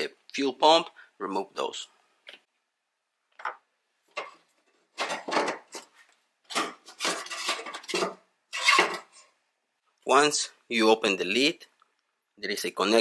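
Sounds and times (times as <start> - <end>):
metallic clinking and scraping: 6.5 - 9.3.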